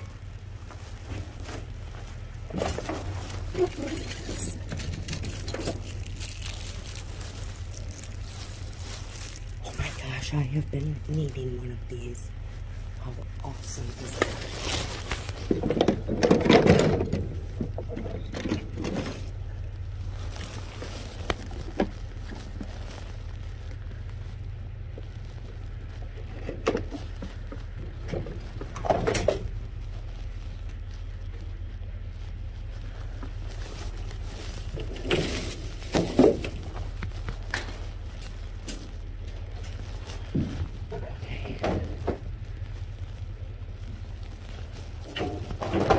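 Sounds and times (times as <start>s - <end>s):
rustles and scrapes: 0.0s - 45.9s
steady low hum: 0.0s - 45.9s
junk clattering in a dumpster: 1.0s - 6.6s, 14.6s - 19.4s, 27.8s - 29.6s, 34.7s - 37.0s, 45.0s - 45.9s.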